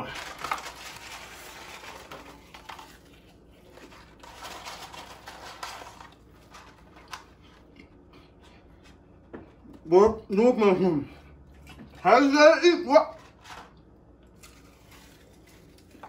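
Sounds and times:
cardboard carton crinkling: 0:00.0 - 0:07.2.

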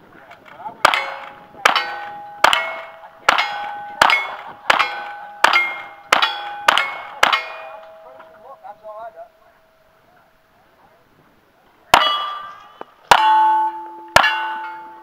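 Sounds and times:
clang of steel target: 0:00.9 - 0:08.3, 0:12.0 - 0:15.0.

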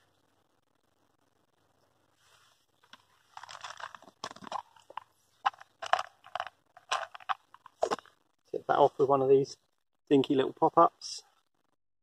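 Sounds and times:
plastic pot crunching and rattling: 0:02.8 - 0:08.2.

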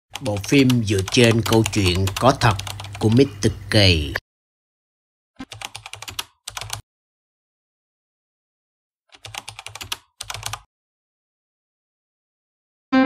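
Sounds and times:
rapid keyboard typing: 0:00.1 - 0:03.3, 0:05.4 - 0:06.8, 0:09.2 - 0:10.7.

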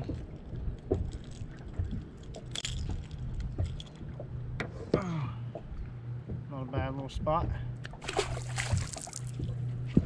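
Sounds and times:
steady low hum: 0:00.0 - 0:10.0
wet rustle: 0:08.0 - 0:09.5.

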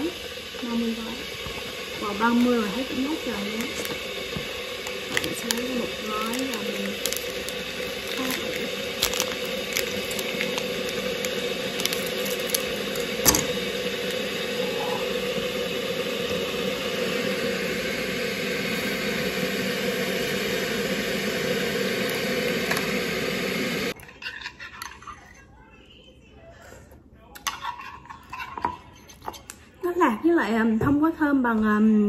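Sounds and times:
electric kettle heating water: 0:00.0 - 0:24.0
paper stick crinkling: 0:04.9 - 0:13.3.

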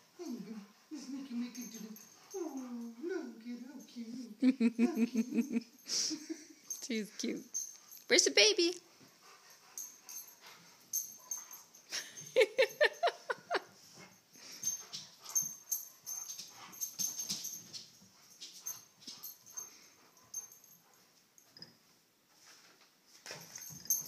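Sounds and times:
dog whining and grumbling: 0:00.1 - 0:03.4.

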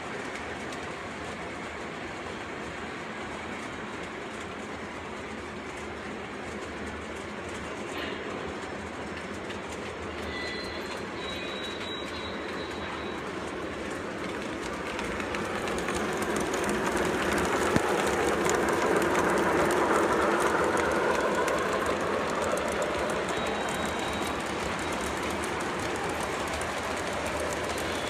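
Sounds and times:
model train motors whirring: 0:08.3 - 0:28.0.

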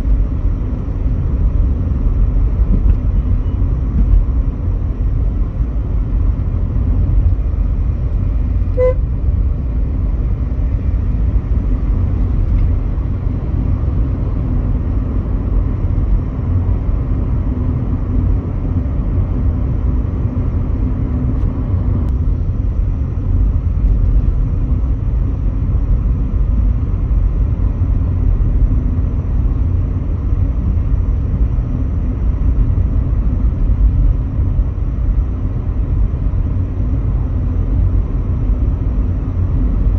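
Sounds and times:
car engine and tyre noise: 0:00.0 - 0:39.9
car horn toot: 0:08.7 - 0:09.1.

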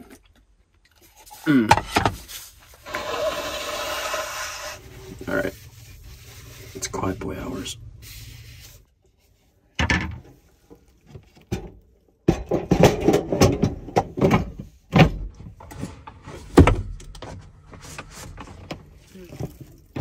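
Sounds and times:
items clattering and knocking: 0:09.8 - 0:20.0.

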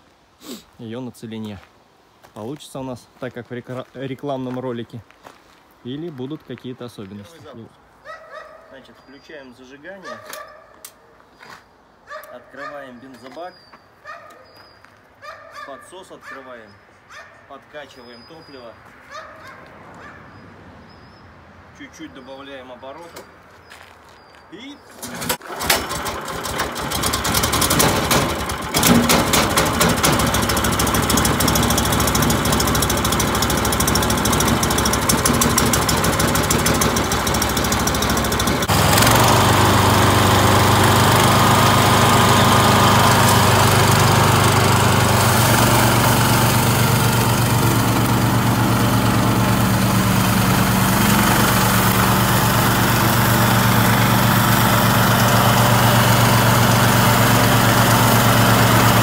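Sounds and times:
mower cutting dense weeds: 0:25.0 - 0:59.0
small petrol engine running: 0:25.0 - 0:59.0.

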